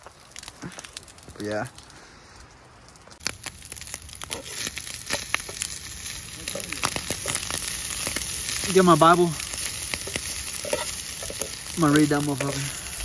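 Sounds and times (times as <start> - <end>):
meat sizzling in a frying pan: 3.2 - 13.0
metal knife scraping a pan: 10.0 - 11.7.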